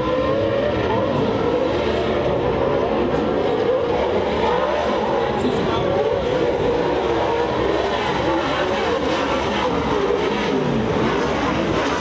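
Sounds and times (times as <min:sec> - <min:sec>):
race truck engines revving: 0:00.0 - 0:12.0.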